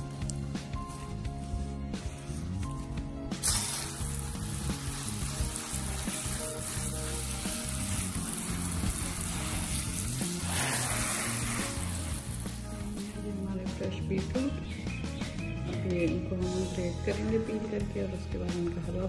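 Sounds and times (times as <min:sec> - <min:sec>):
hose nozzle spraying water: 0:03.4 - 0:13.4.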